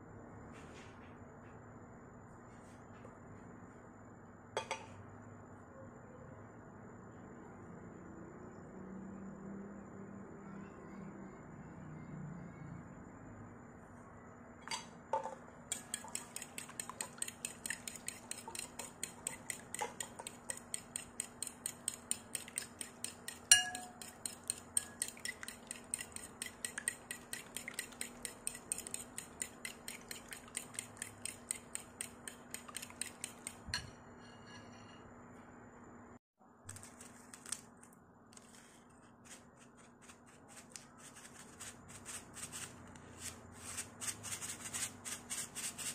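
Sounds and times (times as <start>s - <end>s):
metal spoon clinking in ceramic bowl: 14.6s - 35.0s.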